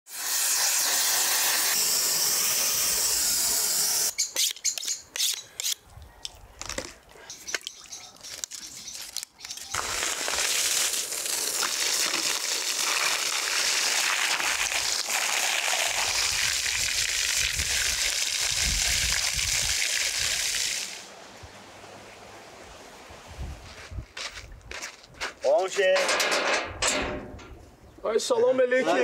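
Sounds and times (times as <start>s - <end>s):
blowtorch flame hissing: 0.1s - 4.1s
hose spraying water on wood: 0.1s - 4.1s, 9.7s - 21.1s.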